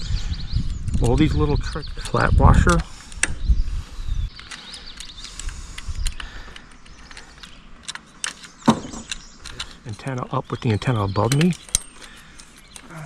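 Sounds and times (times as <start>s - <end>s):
metallic clicks and clinks: 4.3s - 13.0s.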